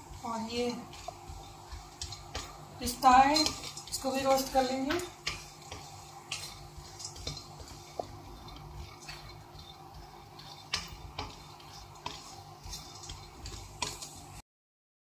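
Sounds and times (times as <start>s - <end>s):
low steady hum: 0.0s - 14.4s
spoon scraping nuts in a pan: 0.0s - 14.4s.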